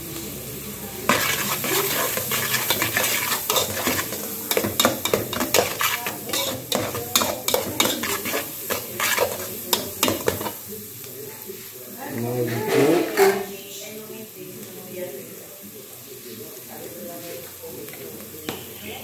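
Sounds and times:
vegetables sizzling in oil: 0:00.0 - 0:19.0
spoon scraping pot: 0:01.1 - 0:10.6.

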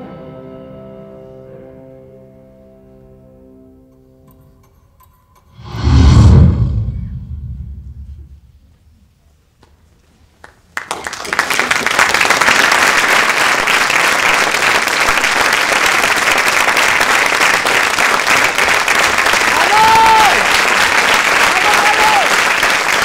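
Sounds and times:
audience applause: 0:10.8 - 0:23.0.

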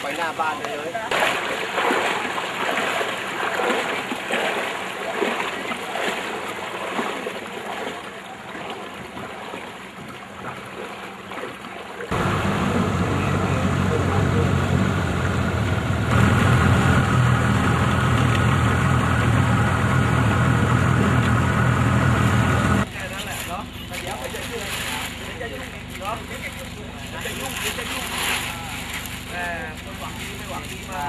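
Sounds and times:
water lapping against boat hull: 0:00.0 - 0:12.2, 0:22.9 - 0:31.0
boat engine running: 0:00.0 - 0:31.0.

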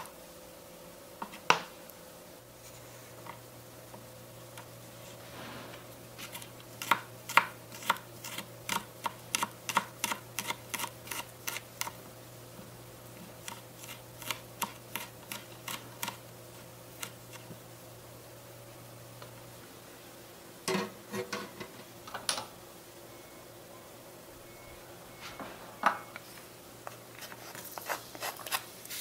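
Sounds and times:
knife chopping on wooden board: 0:06.3 - 0:10.9.

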